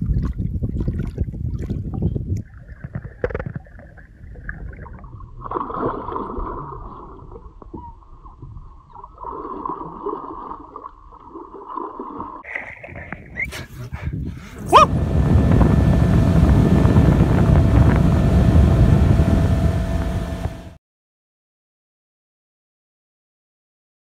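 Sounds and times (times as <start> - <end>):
water sloshing and splashing: 0.0 - 13.7
steady whine: 14.4 - 20.8.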